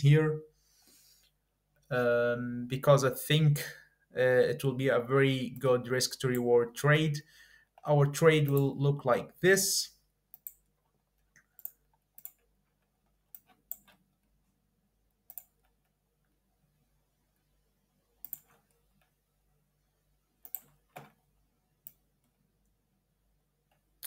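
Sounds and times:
computer mouse clicking: 0:10.3 - 0:10.7, 0:11.3 - 0:14.1, 0:15.3 - 0:15.9, 0:18.2 - 0:19.2, 0:20.4 - 0:21.2.

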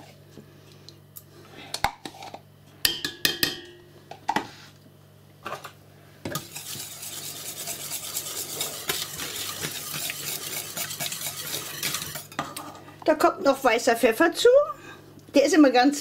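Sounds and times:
whisk scraping a metal pot: 0:06.3 - 0:12.4.

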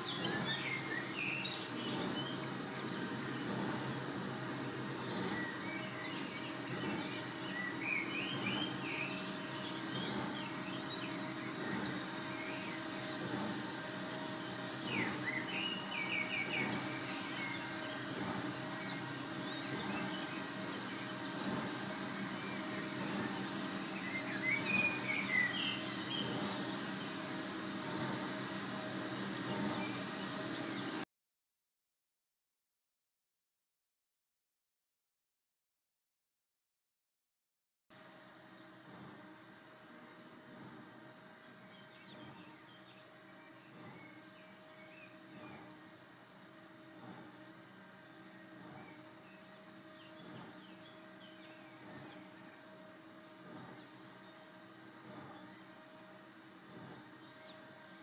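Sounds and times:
low background hum: 0:00.0 - 0:31.0
small birds chirping: 0:00.0 - 0:31.0.

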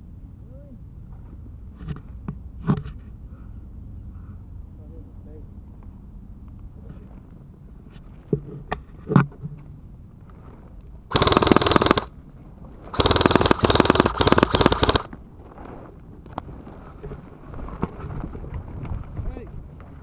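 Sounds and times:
airsoft rifle automatic fire: 0:11.1 - 0:12.1, 0:12.9 - 0:15.1
sharp clicks: 0:11.1 - 0:12.1, 0:12.9 - 0:15.2.

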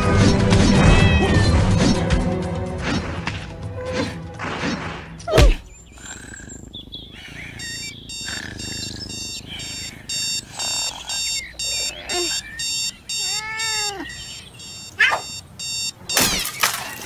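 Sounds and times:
music: 0:00.0 - 0:05.6
alarm clock beeping: 0:07.5 - 0:16.4.

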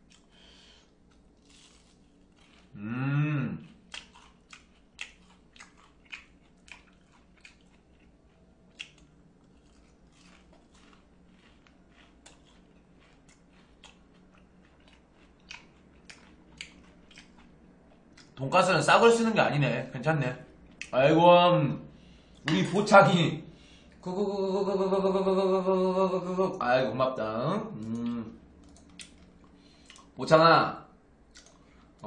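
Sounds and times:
person chewing crunchy food: 0:00.0 - 0:02.8, 0:03.6 - 0:18.4, 0:28.6 - 0:30.2, 0:31.3 - 0:32.0.

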